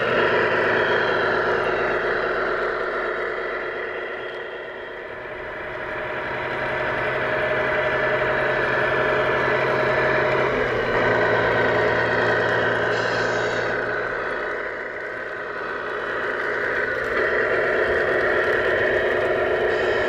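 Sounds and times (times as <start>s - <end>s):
toy truck motor humming: 0.0s - 20.0s
wheels on gravel: 7.4s - 20.0s.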